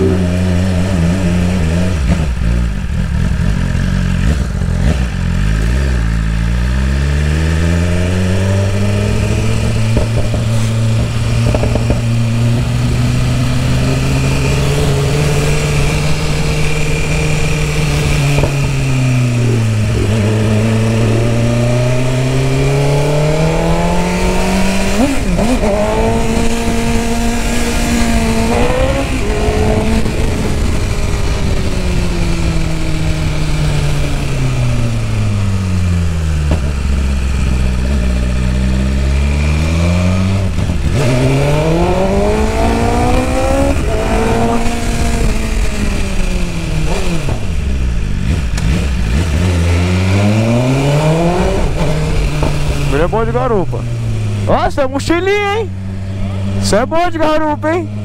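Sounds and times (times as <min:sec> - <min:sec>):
motorcycle engine revving: 0:00.0 - 0:58.0.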